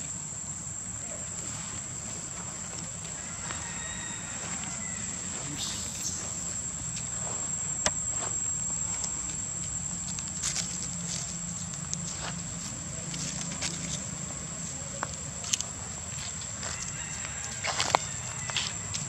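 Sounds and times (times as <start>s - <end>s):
high-pitched insect drone: 0.0s - 11.7s.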